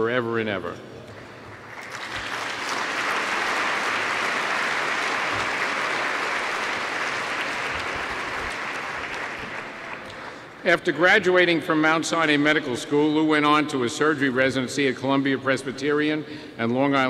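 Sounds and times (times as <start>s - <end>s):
audience applauding: 1.5s - 10.4s.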